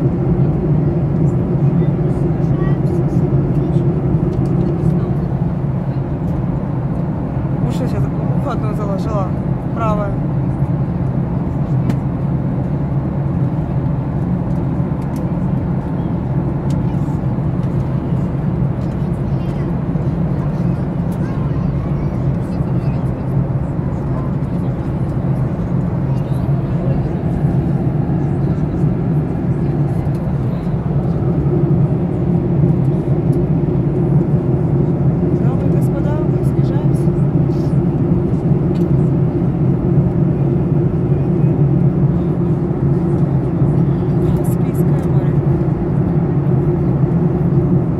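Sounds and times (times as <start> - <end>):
airliner cabin drone: 0.0 - 47.9.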